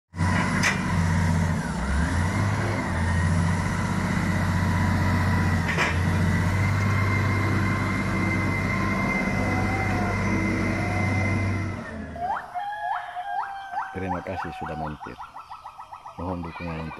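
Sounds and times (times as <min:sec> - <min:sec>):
wheel loader diesel engine: 0:00.1 - 0:12.6.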